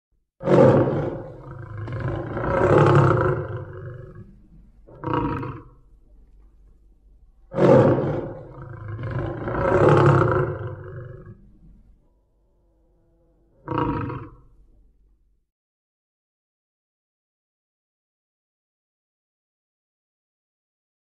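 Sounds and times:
tiger roaring: 0.4s - 5.8s, 7.5s - 11.7s, 12.5s - 14.6s.

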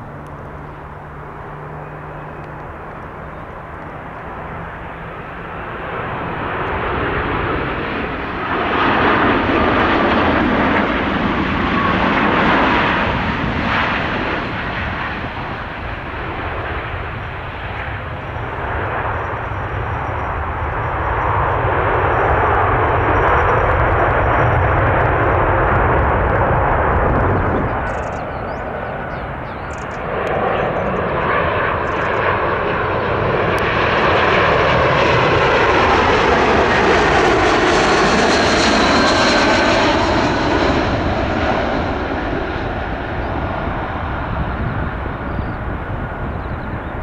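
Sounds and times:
jet airliner engine noise: 0.0s - 47.0s
wind rumble on microphone: 18.2s - 32.2s, 40.5s - 47.0s.

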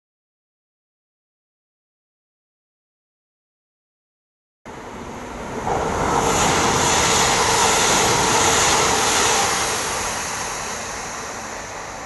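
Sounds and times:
train wheels running on rails: 4.7s - 12.0s.

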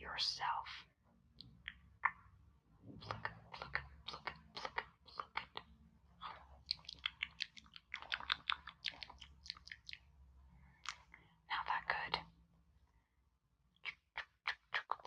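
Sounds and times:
wet mouth clicks and smacks: 3.0s - 10.1s, 10.8s - 11.2s, 13.8s - 15.0s.

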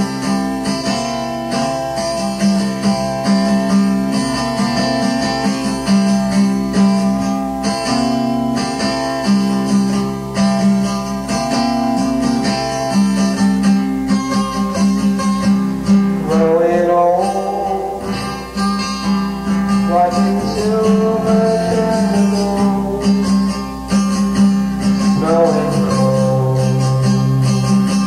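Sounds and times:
acoustic guitar music: 0.0s - 28.0s.

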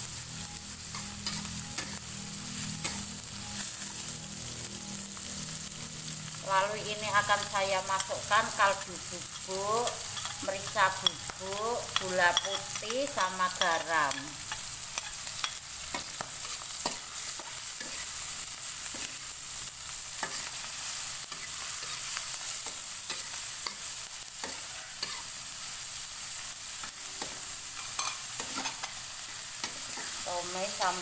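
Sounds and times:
mussels sizzling in oil: 0.0s - 31.0s
metal spatula scraping wok: 0.5s - 2.0s, 7.1s - 19.3s, 27.2s - 31.0s.

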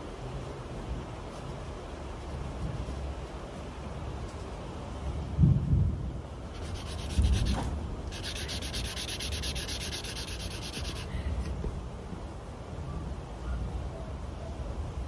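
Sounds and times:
marker scribbling on paper: 6.6s - 11.1s.

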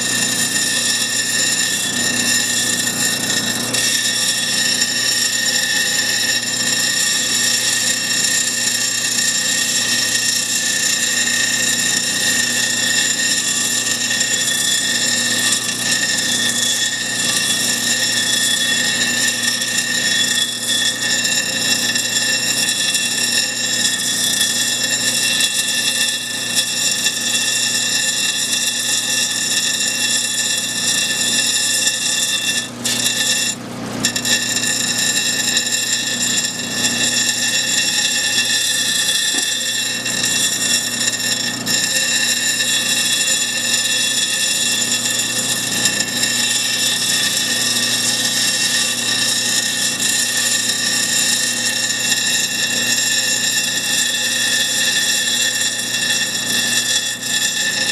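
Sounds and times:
grinding machine whine: 0.0s - 57.9s
stone grinding hiss: 0.0s - 57.9s.

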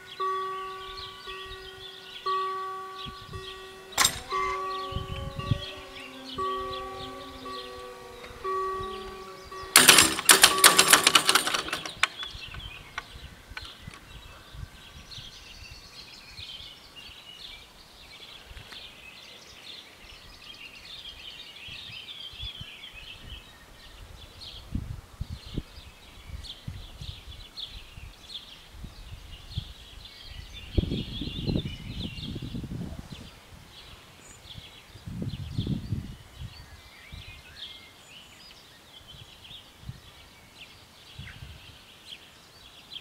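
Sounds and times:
level-crossing warning bell: 0.0s - 12.2s
birds singing: 0.0s - 24.7s, 33.2s - 43.0s
loud clattering burst: 9.7s - 12.2s.

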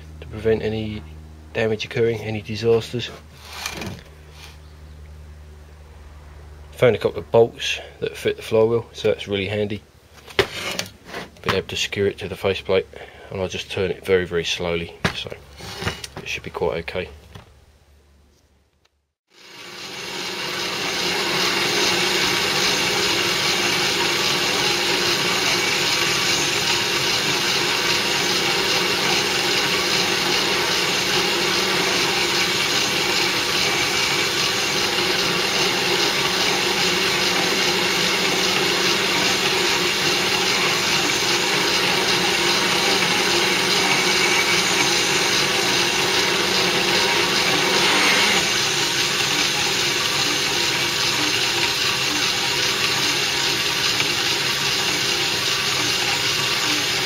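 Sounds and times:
lathe running: 19.3s - 57.0s.

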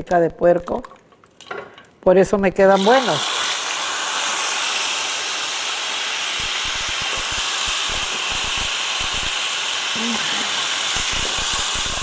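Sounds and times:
beans sizzling in oil: 2.8s - 12.0s.

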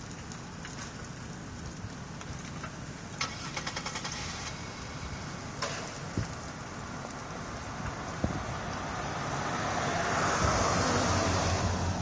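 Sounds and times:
sharp pops and cracks: 0.0s - 4.8s, 5.5s - 8.8s
fire burning with low rumble: 0.0s - 12.0s.

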